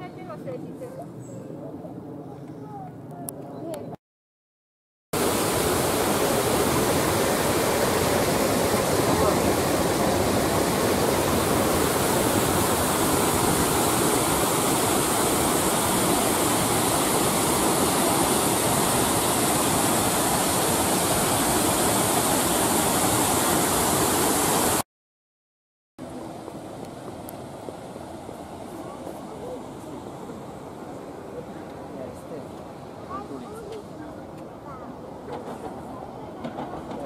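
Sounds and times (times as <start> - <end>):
water rushing over a weir: 5.2 - 24.8.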